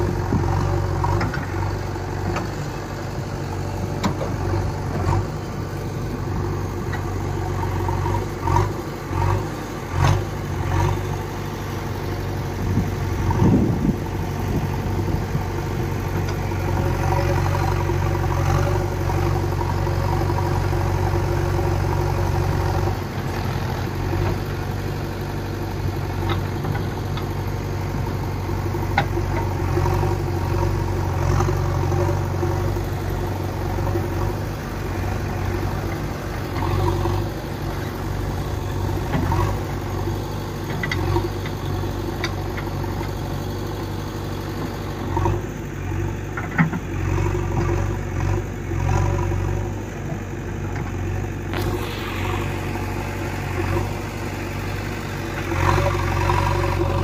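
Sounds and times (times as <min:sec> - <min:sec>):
diesel engine idling: 0:00.0 - 0:57.0.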